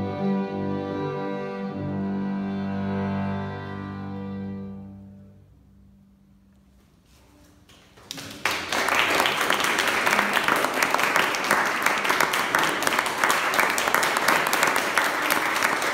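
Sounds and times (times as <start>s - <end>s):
audience applauding: 7.7s - 15.9s.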